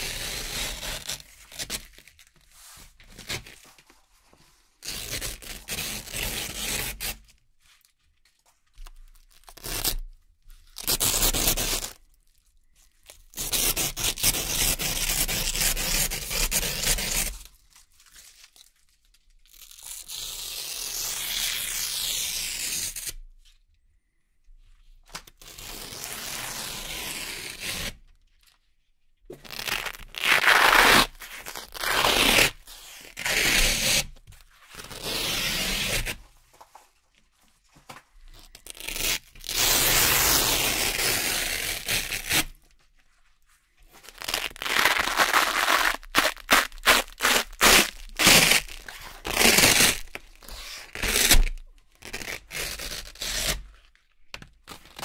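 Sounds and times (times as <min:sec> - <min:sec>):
velcro ripping: 0:00.0 - 0:02.1, 0:10.8 - 0:12.0, 0:29.4 - 0:36.2, 0:38.4 - 0:42.6, 0:44.0 - 0:53.7.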